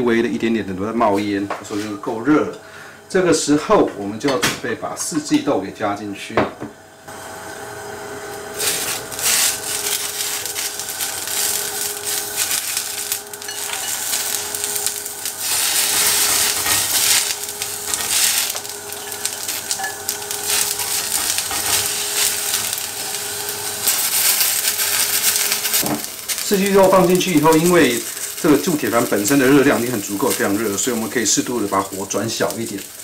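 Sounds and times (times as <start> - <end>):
green beans sizzling on a grill pan: 8.3 - 33.0.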